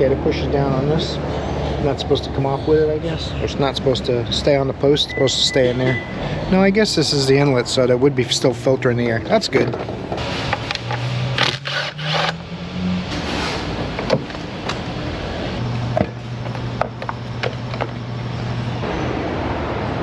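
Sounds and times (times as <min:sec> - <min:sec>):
power tool motor whining: 0:11.3 - 0:12.4.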